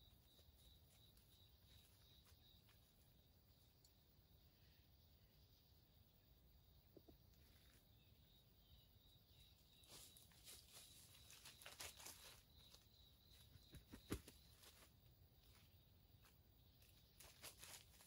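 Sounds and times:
rustling in dry leaf litter: 9.7 - 12.9, 14.5 - 18.0.

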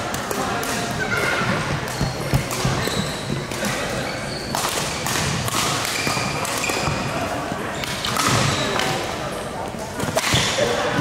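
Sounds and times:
badminton rackets hitting shuttlecocks: 0.0 - 2.9, 3.5 - 7.0
shoes squeaking on court floor: 1.2 - 9.0.

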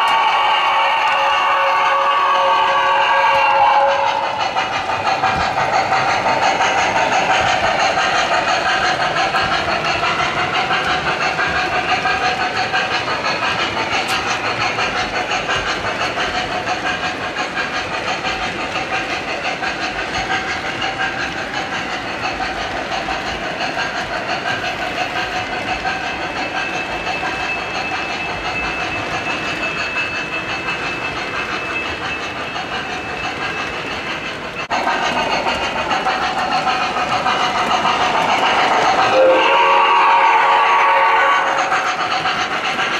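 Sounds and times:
model train wheels clattering: 0.0 - 42.9.

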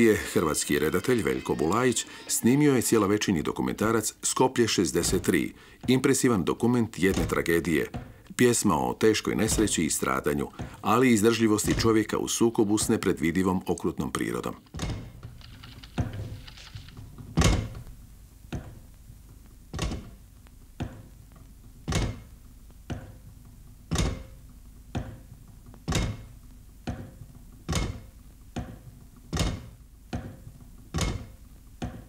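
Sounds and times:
heavy thuds: 4.8 - 13.2.

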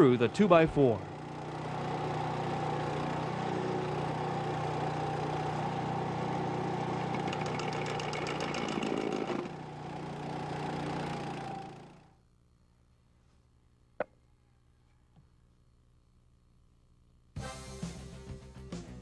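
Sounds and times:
trencher engine running: 0.0 - 12.2
blade rattling through wood: 7.1 - 9.5.

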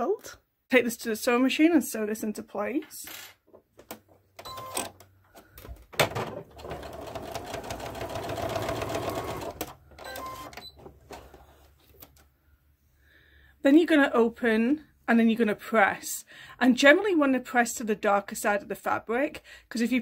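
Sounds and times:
sewing machine stitching: 6.4 - 10.8.

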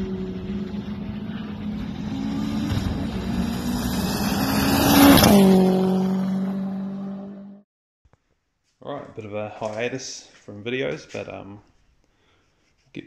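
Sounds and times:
car engine at high revs passing: 0.0 - 7.6.

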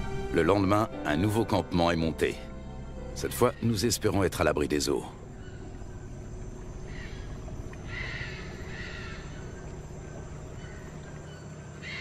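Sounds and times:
steady low hum: 0.0 - 12.0
harsh bird calls: 3.2 - 12.0.

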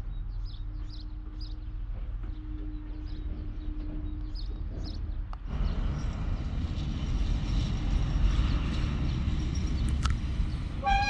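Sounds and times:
freight train rumbling: 0.0 - 11.0
wheels squealing: 10.7 - 11.0.

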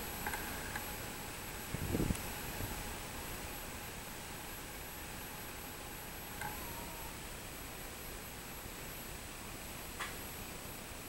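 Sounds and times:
cicadas buzzing: 0.0 - 11.0.

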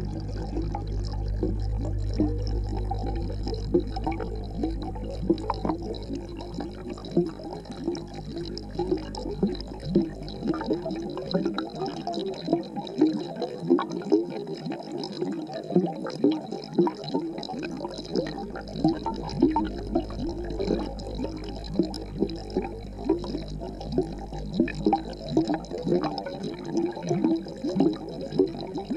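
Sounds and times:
low hum: 0.0 - 10.8, 18.4 - 25.8
aquarium water bubbling: 0.0 - 28.9.

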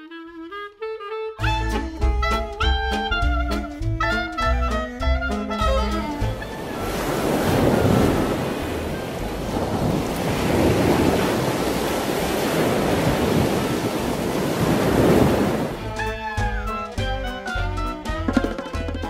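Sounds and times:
ocean surf breaking: 6.0 - 16.0.

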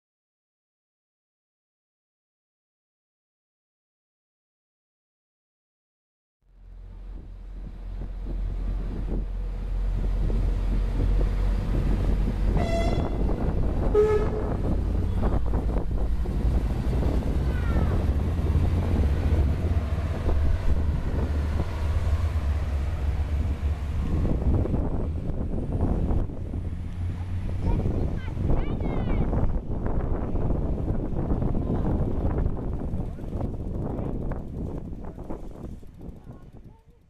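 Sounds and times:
diesel train engine rumbling: 6.4 - 37.0
two-tone train horn toots: 12.5 - 15.3.

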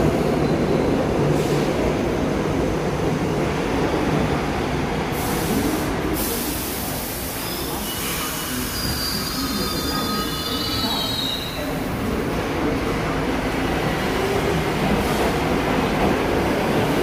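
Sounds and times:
subway train rumble: 0.0 - 17.0
air hiss: 5.1 - 9.5.

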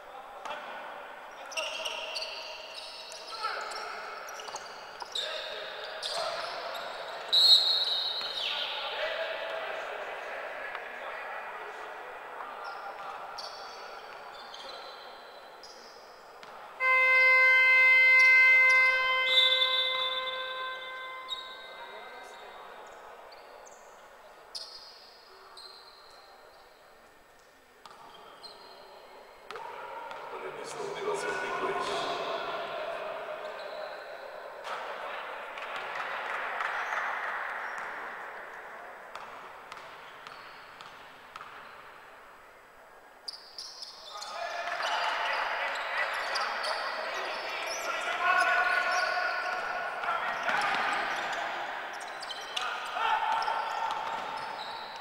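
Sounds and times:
crowd noise in a gym: 0.0 - 55.0
sneakers squeaking on court: 1.4 - 8.8, 12.6 - 26.8, 39.1 - 41.9, 43.3 - 55.0
arena horn buzzing: 16.8 - 21.6.

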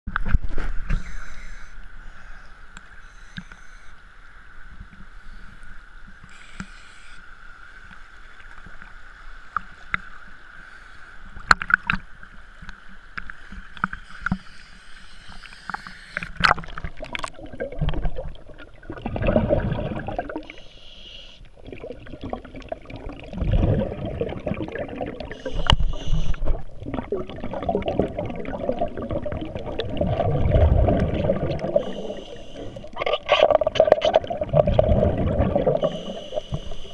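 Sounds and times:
water splashing against camera: 11.3 - 20.6, 21.6 - 36.9
muffled underwater gurgling: 15.4 - 36.9.

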